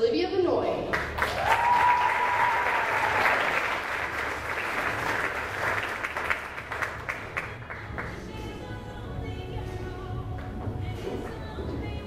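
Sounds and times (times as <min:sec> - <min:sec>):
audience applauding: 0:01.0 - 0:08.2.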